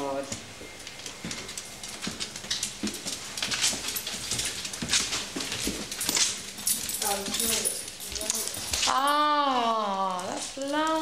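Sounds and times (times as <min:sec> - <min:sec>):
clicks and scuffs on wooden floor: 0:00.3 - 0:09.0.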